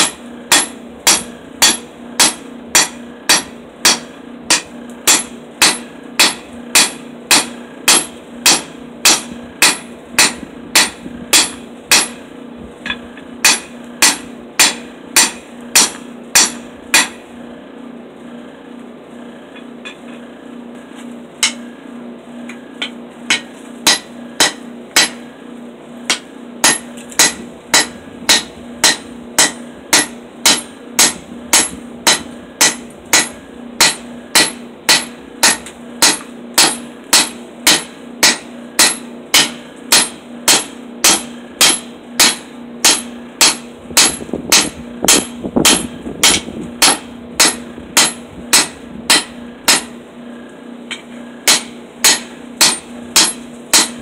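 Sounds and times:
hammer striking hot steel: 0.0s - 17.3s, 19.5s - 20.3s, 21.4s - 21.7s, 22.4s - 25.3s, 26.0s - 50.0s, 50.8s - 54.0s
low hum: 0.0s - 54.0s.

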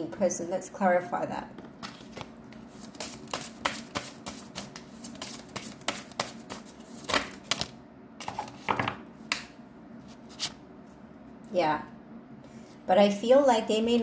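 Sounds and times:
cards being shuffled: 1.6s - 8.6s.

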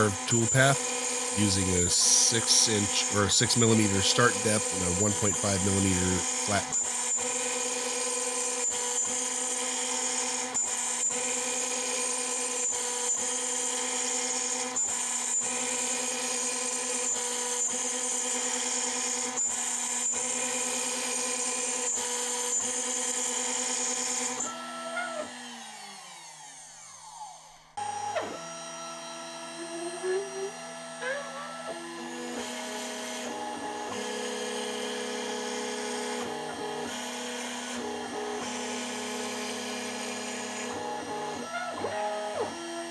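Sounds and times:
spindle winding down: 0.0s - 6.8s, 29.2s - 33.4s
router bit cutting wood: 0.0s - 42.9s
router spindle whining: 0.0s - 42.9s.

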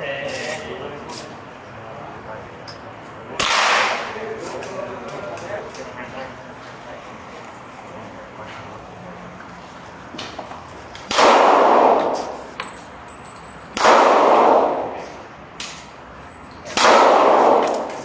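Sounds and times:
handgun shots ringing: 3.4s - 4.2s, 11.1s - 12.5s, 13.8s - 15.9s, 16.7s - 18.0s.

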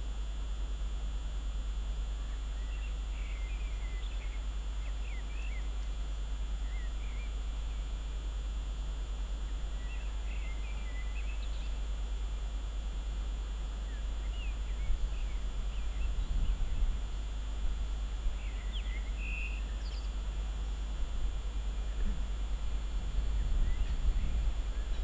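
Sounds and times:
steady low rumble: 20.2s - 25.0s.

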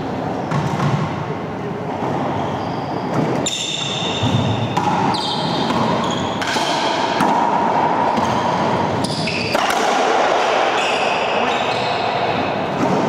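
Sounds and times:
racquetball hits echoing: 0.4s - 2.4s, 3.1s - 13.0s
shoe squeaks: 2.1s - 6.6s, 8.1s - 9.7s, 10.8s - 12.5s.

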